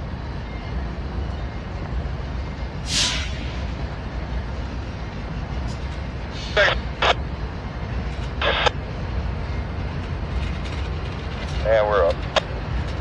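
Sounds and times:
diesel locomotives idling: 0:00.0 - 0:13.0
air release hiss: 0:02.8 - 0:03.6.

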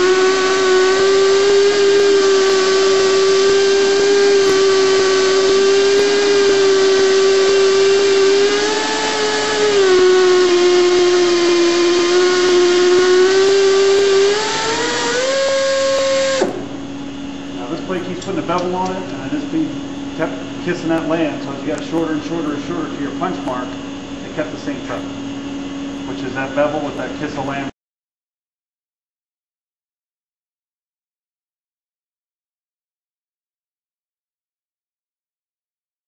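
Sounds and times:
pipe beveling machine motor whine: 0:00.0 - 0:27.7.

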